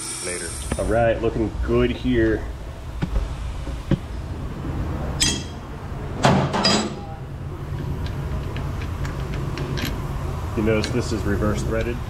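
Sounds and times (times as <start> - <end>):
brake lathe humming: 0.0 - 12.0
loud knocks: 3.0 - 4.1
ringing metallic clink: 5.2 - 5.6.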